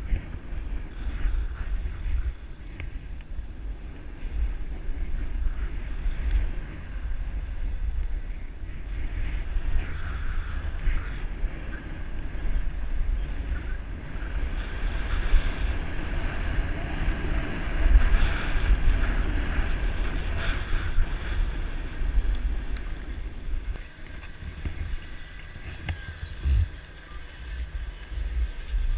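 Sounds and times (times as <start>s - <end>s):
wind buffeting microphone: 0.0s - 28.9s
skis sliding on packed snow: 8.8s - 28.9s.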